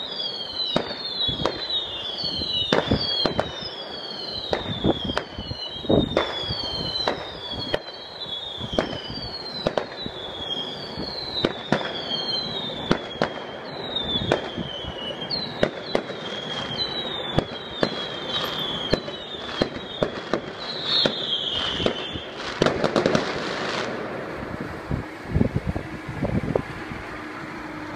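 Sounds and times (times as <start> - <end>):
firework whistle falling in pitch: 0.0 - 23.9
distant fireworks bangs and pops: 0.0 - 24.9
crackling firework bangs: 0.0 - 27.3.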